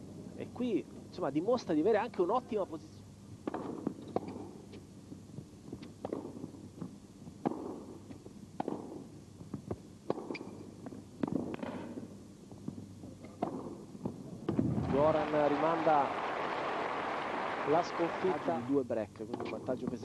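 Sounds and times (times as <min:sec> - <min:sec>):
tennis ball hit by rackets: 0:03.4 - 0:04.5, 0:05.8 - 0:06.6, 0:07.4 - 0:10.6, 0:13.4 - 0:14.6.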